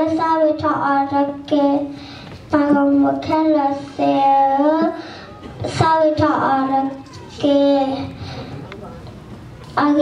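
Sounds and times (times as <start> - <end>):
girl singing into microphone: 0.0 - 8.2.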